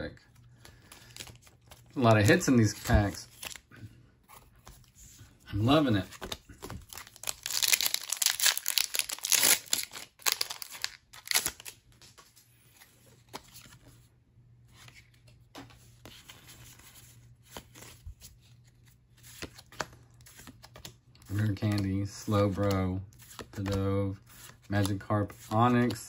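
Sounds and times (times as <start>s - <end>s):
cards rustling and clicking: 0.3s - 14.0s, 14.7s - 26.0s
foil wrapper tearing and crinkling: 6.8s - 11.8s.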